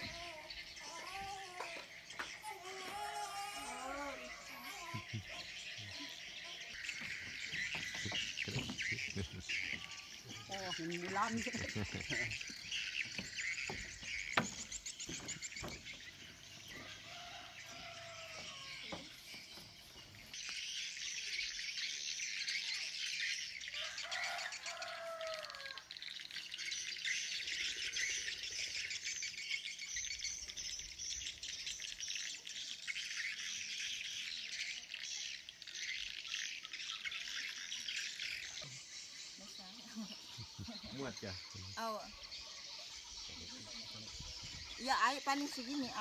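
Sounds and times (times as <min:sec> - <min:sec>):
lower bird calls: 0:00.0 - 0:19.2
small birds chirping: 0:00.0 - 0:46.0.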